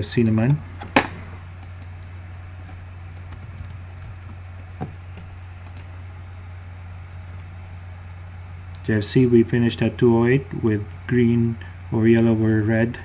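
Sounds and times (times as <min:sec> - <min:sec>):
steady low hum: 0:00.0 - 0:13.0
computer clicks: 0:01.6 - 0:02.1, 0:05.2 - 0:05.9.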